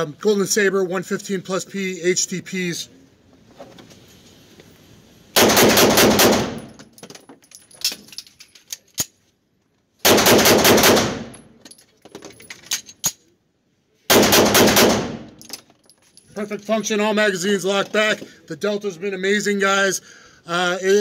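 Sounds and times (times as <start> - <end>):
pistol shots echoing indoors: 5.4 - 6.7, 10.1 - 11.3, 14.1 - 15.4.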